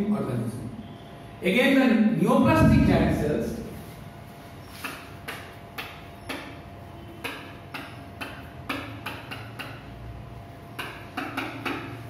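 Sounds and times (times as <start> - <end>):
marker squeaking on whiteboard: 4.5 - 10.0.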